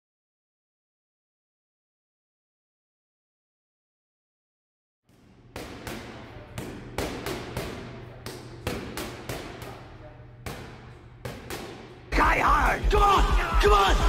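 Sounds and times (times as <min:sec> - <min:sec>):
boxing gloves slapping mitts: 0:05.6 - 0:12.0.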